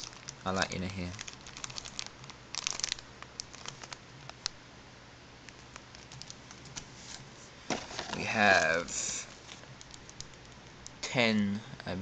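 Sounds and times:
plastic bag crinkling: 0.0 - 4.5.

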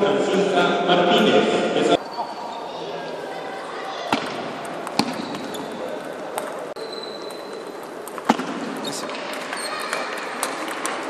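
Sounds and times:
murmur of voices in a hall: 0.0 - 11.0.

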